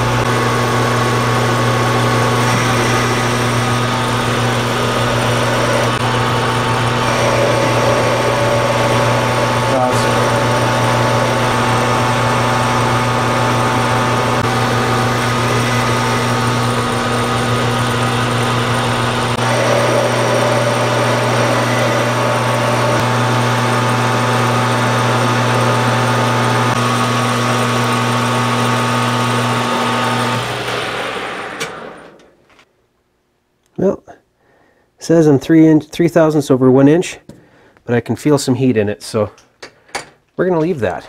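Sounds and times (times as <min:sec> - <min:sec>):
lathe spinning down: 0:00.0 - 0:32.3
metal lathe motor whining: 0:00.0 - 0:32.3.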